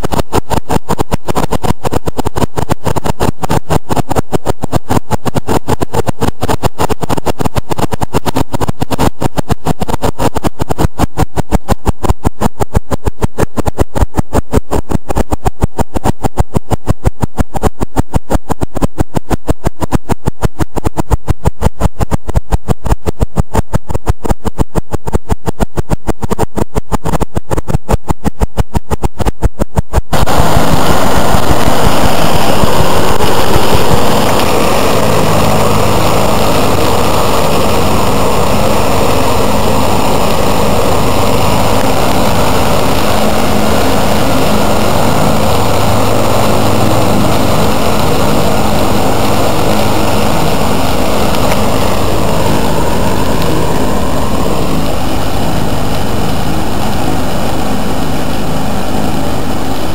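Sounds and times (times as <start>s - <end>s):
tractor engine running: 0.0s - 59.9s
rhythmic pulsing: 28.0s - 59.9s
mower cutting grass: 30.1s - 59.9s.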